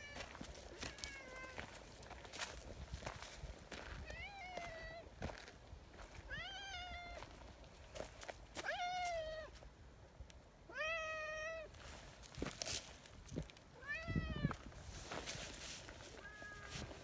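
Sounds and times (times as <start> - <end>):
cat meowing: 13.8 - 14.6.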